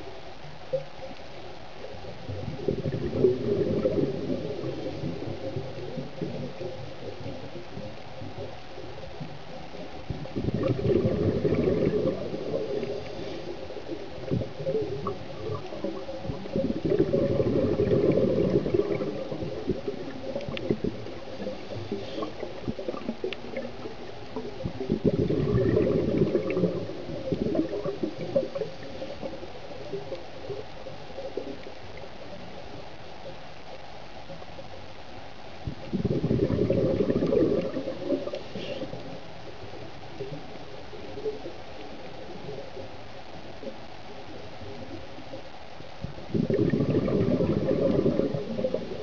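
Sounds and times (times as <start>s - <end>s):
underwater bubbles gurgling: 0.0s - 49.0s
underwater steady wash: 0.0s - 49.0s
faint clicks: 0.4s - 2.1s, 4.7s - 24.8s, 25.6s - 36.0s, 37.2s - 46.2s.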